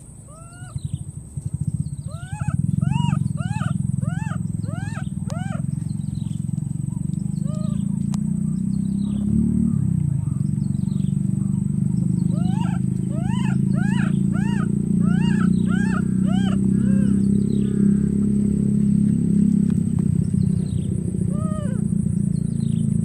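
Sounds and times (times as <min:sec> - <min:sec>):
baby monkey crying: 0:00.3 - 0:00.8, 0:02.1 - 0:05.7, 0:07.4 - 0:07.9, 0:12.3 - 0:17.9, 0:21.3 - 0:21.9.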